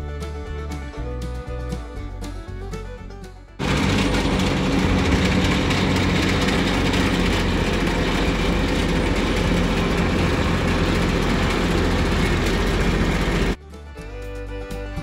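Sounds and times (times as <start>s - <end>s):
tractor engine running: 3.6s - 15.0s.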